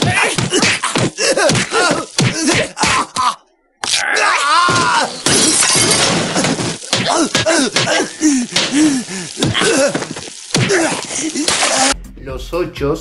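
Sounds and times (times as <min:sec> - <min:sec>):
man crying out: 0:07.0 - 0:11.9.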